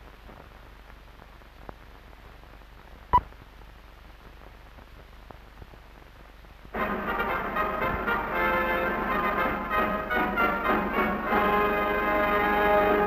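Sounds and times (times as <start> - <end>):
faint crackle and hiss: 0.0 - 13.0
brass-led orchestral music: 6.8 - 13.0.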